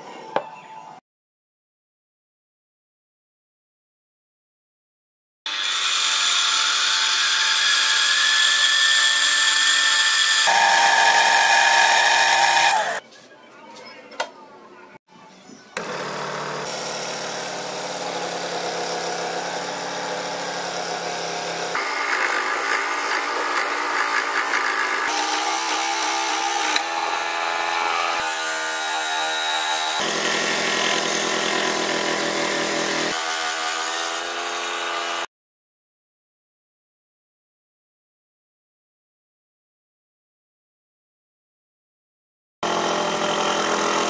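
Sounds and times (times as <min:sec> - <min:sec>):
scroll saw cutting wood: 0:05.5 - 0:13.0, 0:15.8 - 0:35.3, 0:42.6 - 0:44.0.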